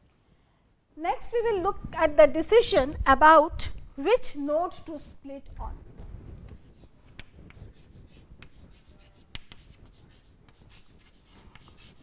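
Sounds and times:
chalk scratching on chalkboard: 6.4 - 12.0.

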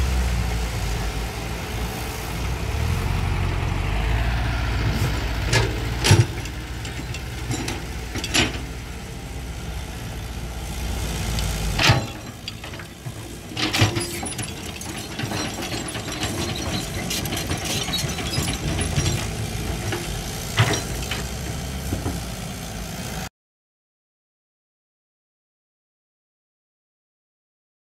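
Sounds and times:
diesel engines running: 0.0 - 23.3
excavator bucket clanking: 5.0 - 8.8, 11.3 - 22.4.

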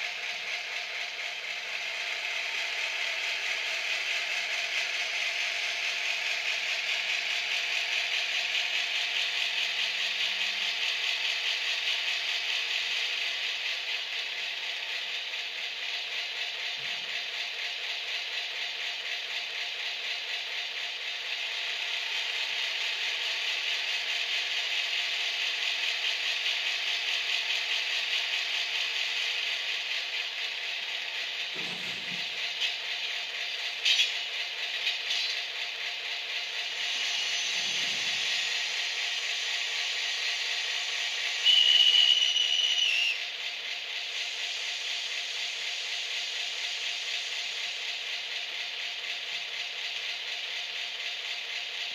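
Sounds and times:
tinny diesel locomotive engine sound: 0.0 - 51.9.

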